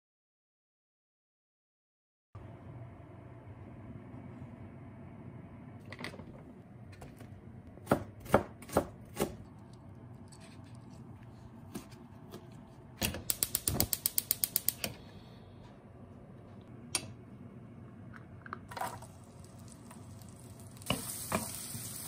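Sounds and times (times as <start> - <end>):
gas hob igniter clicking: 13.0 - 15.0, 16.9 - 17.2.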